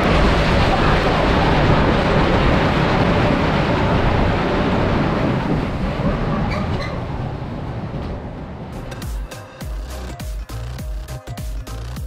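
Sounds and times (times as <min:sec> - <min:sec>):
roller coaster train rumbling on track: 0:00.0 - 0:12.0.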